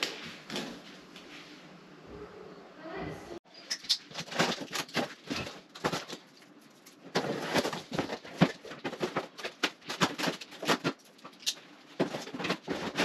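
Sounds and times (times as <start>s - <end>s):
cardboard box rustling and scraping: 7.1s - 11.0s, 12.0s - 13.0s.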